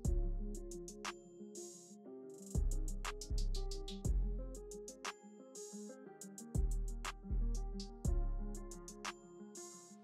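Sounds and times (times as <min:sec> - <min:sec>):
deep bass hit: 0:08.1 - 0:08.4.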